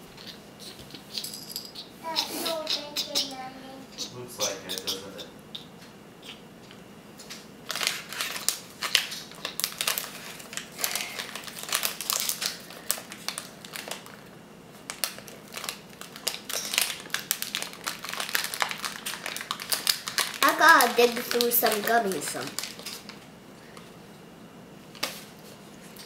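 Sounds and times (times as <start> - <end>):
crinkly packet rustling: 7.6 - 23.3.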